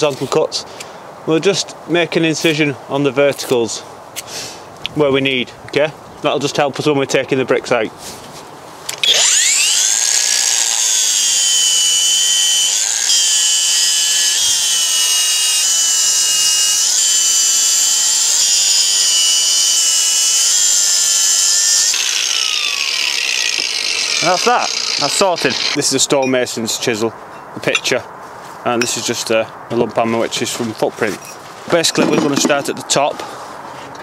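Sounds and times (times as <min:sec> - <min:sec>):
angle grinder cutting brick: 0:08.9 - 0:26.0.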